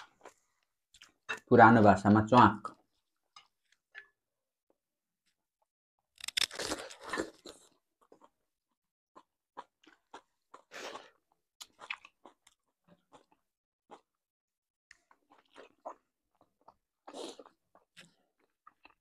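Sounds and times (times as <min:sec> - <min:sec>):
crunchy bite and chewing: 0:06.2 - 0:08.3.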